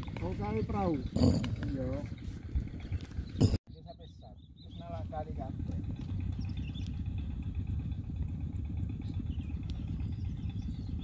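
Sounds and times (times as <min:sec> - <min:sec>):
small engine puttering: 0:00.0 - 0:11.0.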